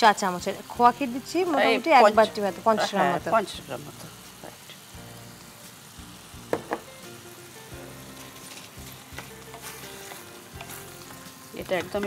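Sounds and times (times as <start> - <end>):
food sizzling in a pan: 0.0 - 12.0
tap on pan: 6.4 - 7.0, 9.1 - 10.8, 11.7 - 12.0.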